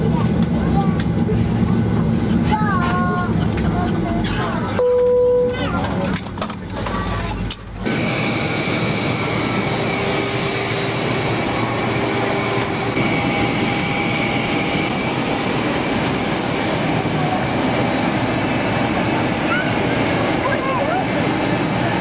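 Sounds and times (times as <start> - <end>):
jet turbines running: 0.0 - 4.8, 5.5 - 22.0
high whining tones: 7.8 - 20.3.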